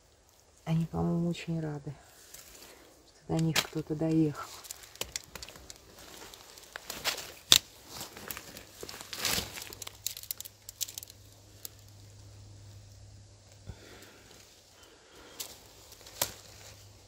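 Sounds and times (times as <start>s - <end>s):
sharp twig crack: 3.3s - 12.0s, 15.2s - 16.9s
footsteps rustling through leaf litter: 3.7s - 11.6s, 15.2s - 17.0s.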